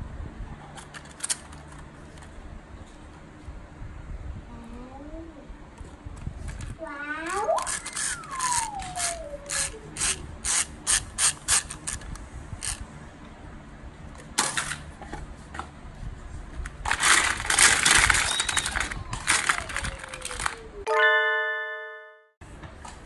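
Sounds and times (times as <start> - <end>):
plastic toys rattling in basket: 6.5 - 12.8, 16.7 - 20.8
wind-up toy ratchet clicking: 7.2 - 12.8
falling whistle-like tone: 7.8 - 9.5.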